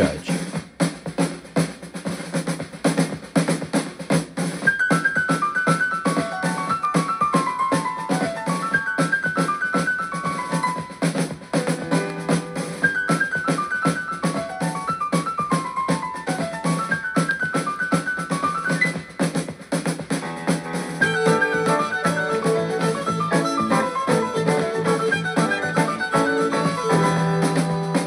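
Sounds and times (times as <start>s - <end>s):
drums: 0.0s - 28.0s
keyboard playing descending runs: 20.2s - 28.0s.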